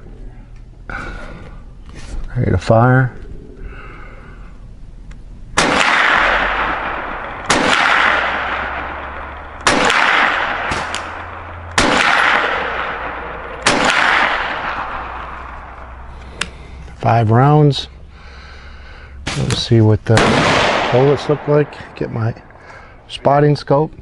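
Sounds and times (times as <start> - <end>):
rifle shots with echo: 5.6 - 16.1, 19.2 - 23.0.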